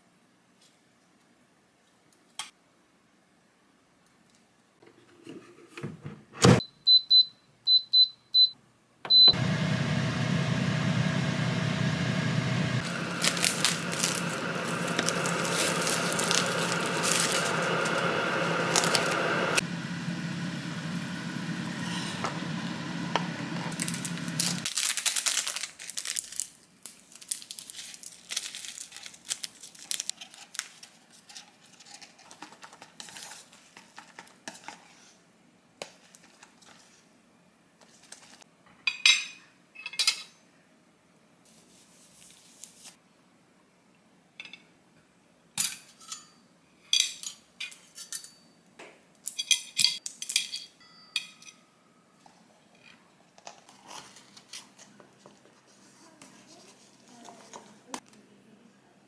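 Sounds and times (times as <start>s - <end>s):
control panel beeps: 9.1s - 9.4s
air fryer fan whirring: 9.1s - 24.7s
chopsticks stirring noodles: 12.8s - 19.2s.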